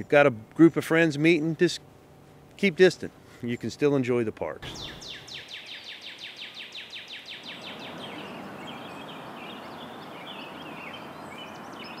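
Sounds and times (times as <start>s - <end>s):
steady background hiss: 0.0s - 12.0s
short bird chirps: 4.6s - 11.0s
bird singing down-slurred notes: 4.6s - 12.0s.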